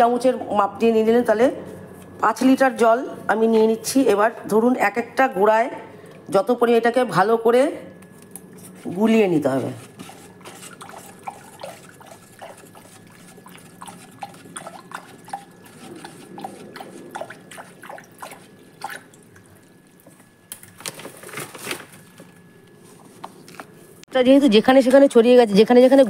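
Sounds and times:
water stirred in plastic basin: 9.8 - 20.2.

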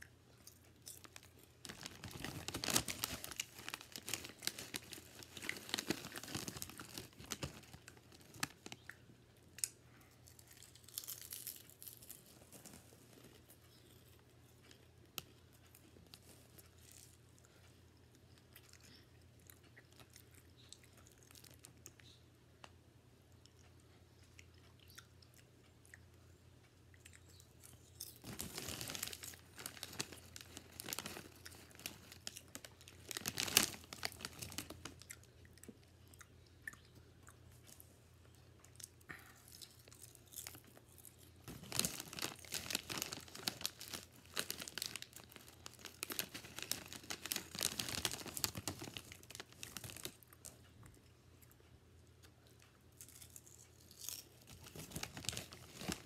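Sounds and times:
plastic snack bag crinkling: 0.4 - 9.0, 9.6 - 13.8, 27.7 - 35.8, 39.5 - 50.9, 53.0 - 56.0.

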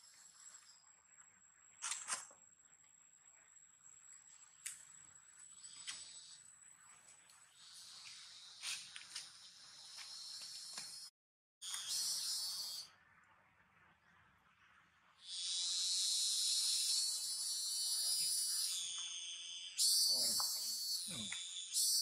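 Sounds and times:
high-pitched insect buzzing: 7.6 - 11.1, 11.7 - 12.9, 15.3 - 22.0.

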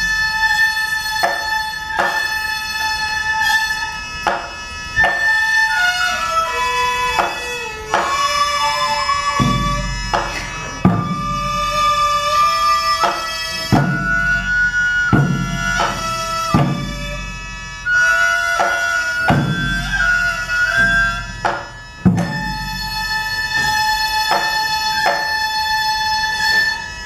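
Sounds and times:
double-reed pipe melody: 0.0 - 27.0
flute melody: 0.0 - 27.0
drum strikes with low boom: 9.4 - 11.9, 13.0 - 17.5, 18.6 - 20.2, 20.8 - 22.9.

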